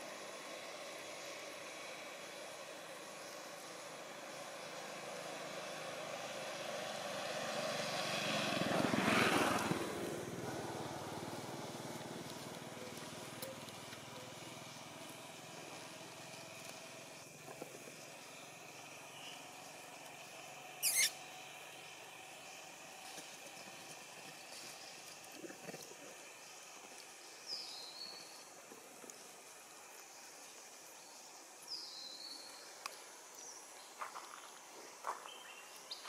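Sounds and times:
vehicle passing by: 0:00.2 - 0:13.3
sharp high squeak: 0:20.8 - 0:21.2.

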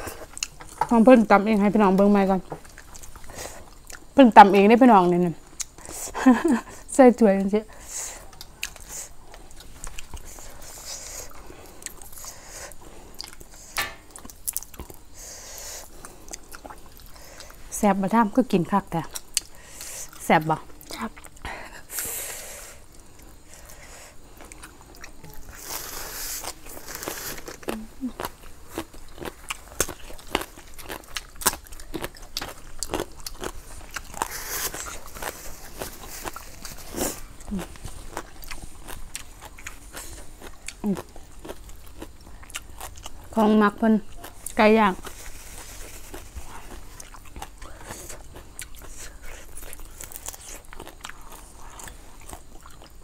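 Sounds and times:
crunchy chewing: 0:00.0 - 0:53.0
hissing breaths through lips: 0:10.1 - 0:13.8, 0:15.0 - 0:17.7, 0:21.4 - 0:24.5, 0:25.5 - 0:27.6.

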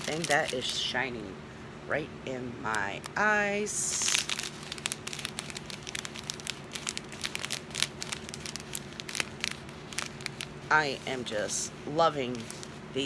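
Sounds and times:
plastic bags crinkling: 0:00.0 - 0:00.9, 0:03.8 - 0:13.0.

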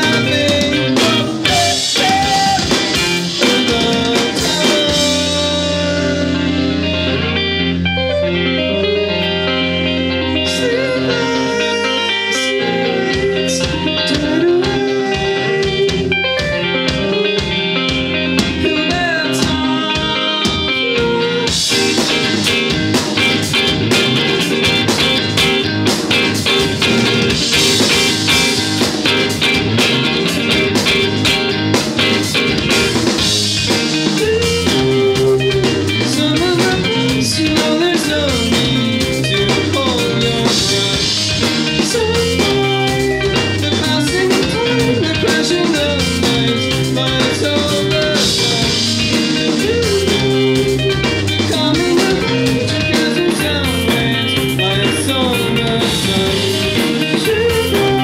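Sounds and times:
drum kit: 0:00.0 - 0:58.0
electric guitar picking: 0:00.0 - 0:58.0.

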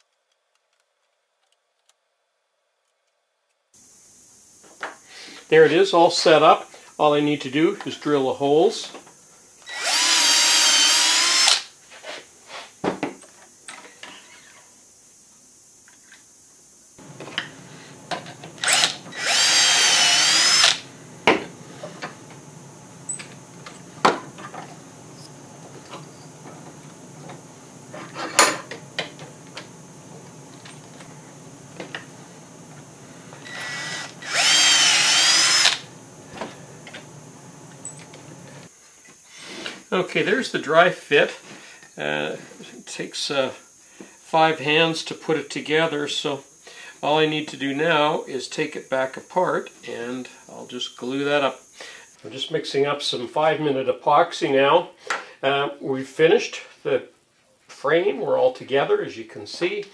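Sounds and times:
cordless drill boring wood: 0:09.6 - 0:11.7, 0:17.0 - 0:25.4, 0:27.3 - 0:38.7.

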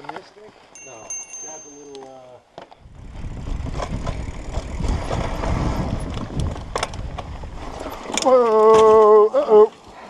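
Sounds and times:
bike rattling over rocks: 0:02.5 - 0:09.2
wind on microphone: 0:02.8 - 0:09.0
bike tyres rumbling on dirt: 0:02.8 - 0:09.3.

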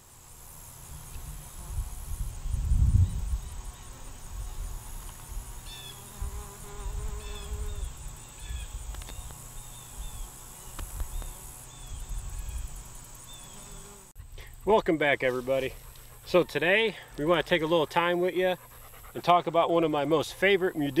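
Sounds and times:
bumblebee buzzing: 0:00.0 - 0:14.2
crickets chirping: 0:00.0 - 0:21.0.

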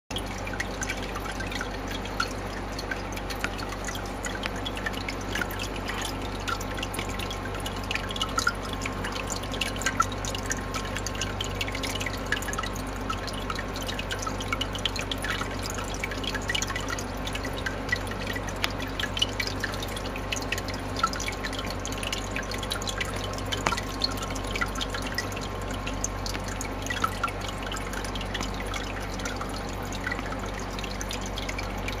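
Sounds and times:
steady low hum: 0:00.1 - 0:32.0
water trickling and dripping: 0:00.1 - 0:32.0.

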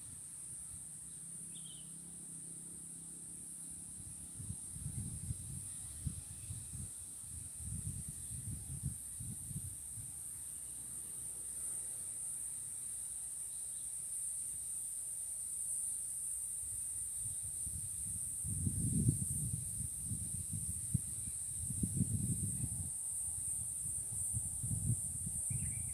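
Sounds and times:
high-pitched insect chorus: 0:00.0 - 0:25.9
wind rumbling on microphone: 0:04.4 - 0:10.2, 0:17.2 - 0:25.9.

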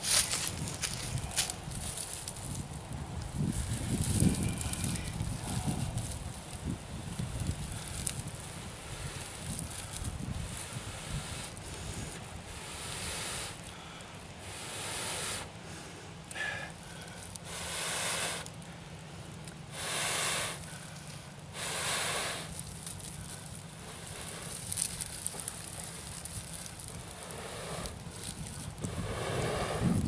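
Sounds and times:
faint crackling of tinder: 0:00.0 - 0:30.0
person blowing whooshing breaths: 0:03.4 - 0:18.6, 0:19.6 - 0:30.0.

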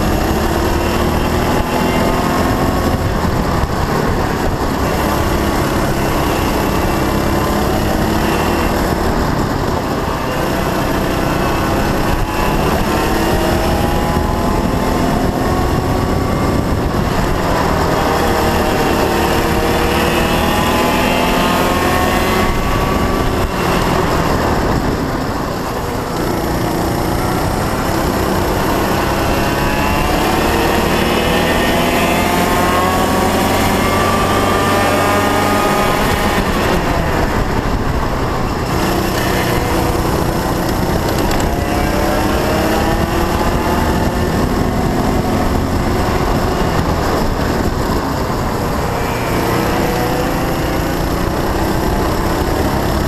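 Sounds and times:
go-kart engine running: 0:00.0 - 0:53.0.

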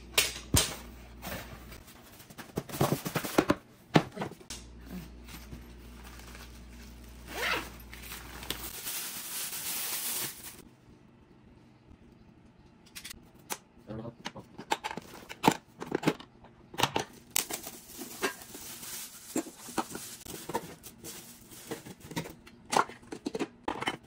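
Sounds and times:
plastic wrapping crinkling: 0:05.8 - 0:10.7, 0:17.2 - 0:22.3
zipper pulled open: 0:07.2 - 0:07.8.

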